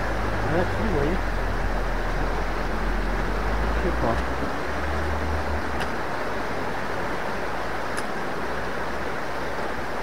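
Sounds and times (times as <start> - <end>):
river flowing over rocks: 0.0 - 10.0.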